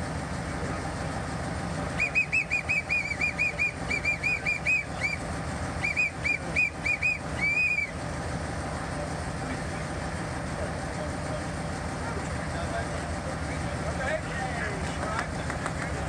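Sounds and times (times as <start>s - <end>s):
guard's whistle toots: 1.9s - 8.0s.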